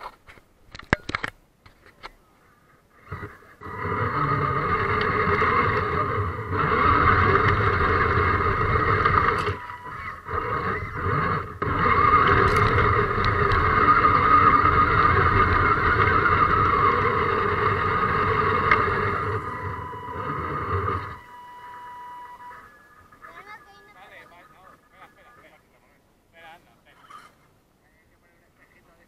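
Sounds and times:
electric motor and gear whining: 0:03.0 - 0:25.2.

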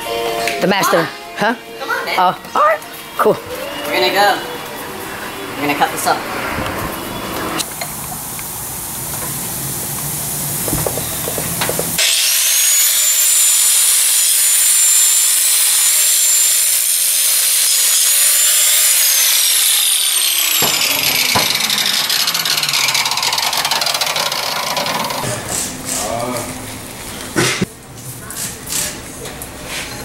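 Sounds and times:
angle grinder grinding steel: 0:12.0 - 0:26.0.

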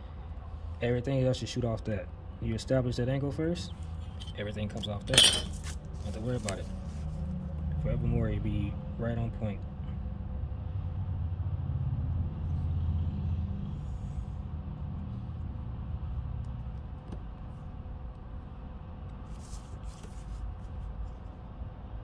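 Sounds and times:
low steady rumble: 0:00.0 - 0:22.0
plastic sliding on paper: 0:19.3 - 0:20.9.

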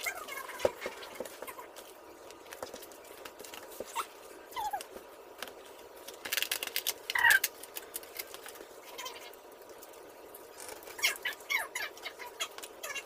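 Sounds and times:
card sheets rustling and tapping: 0:00.5 - 0:04.0.

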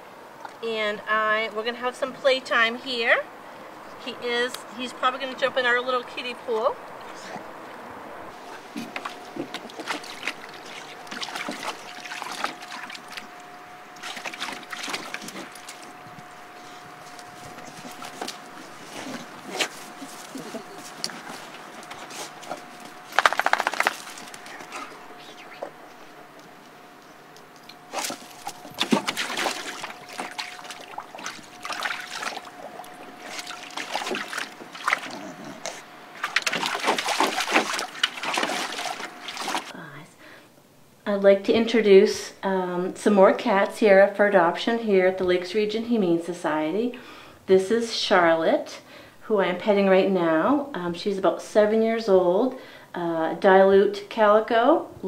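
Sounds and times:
dog splashing in water: 0:08.8 - 0:13.4, 0:14.0 - 0:16.3, 0:21.1 - 0:24.8, 0:27.6 - 0:35.2, 0:36.1 - 0:39.7.

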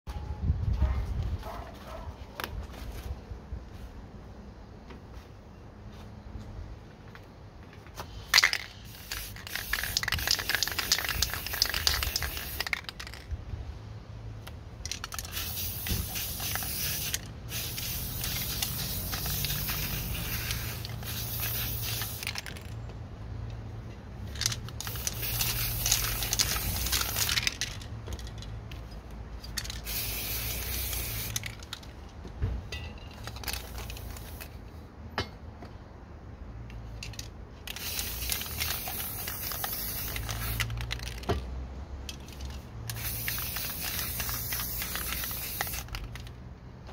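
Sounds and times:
spray-paint can hissing: 0:08.3 - 0:13.2, 0:14.9 - 0:22.7, 0:24.4 - 0:27.6, 0:29.6 - 0:31.7, 0:33.3 - 0:34.6, 0:37.7 - 0:41.3, 0:42.9 - 0:46.3.

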